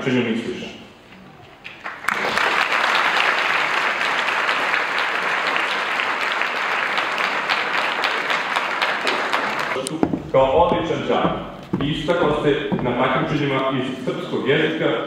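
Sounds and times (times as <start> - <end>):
large audience applauding: 1.6 - 9.9.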